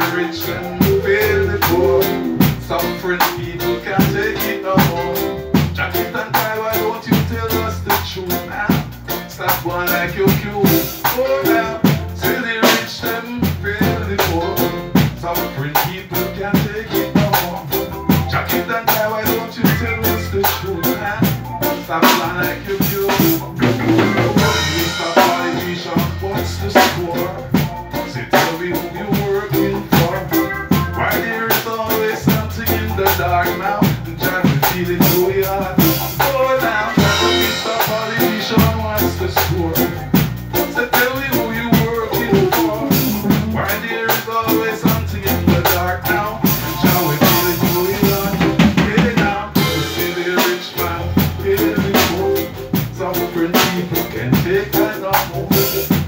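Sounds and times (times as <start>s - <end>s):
drum kit beat: 0.0s - 56.0s
keyboard: 0.0s - 56.0s
repeating bass line: 0.0s - 56.0s.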